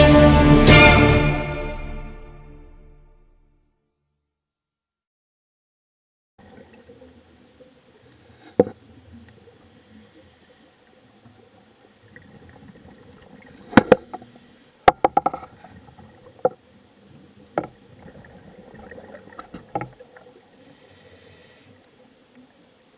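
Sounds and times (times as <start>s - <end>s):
faint underwater hiss: 6.4s - 22.9s
sharp underwater knocks and clicks: 8.4s - 9.4s, 13.7s - 16.6s, 17.5s - 20.0s.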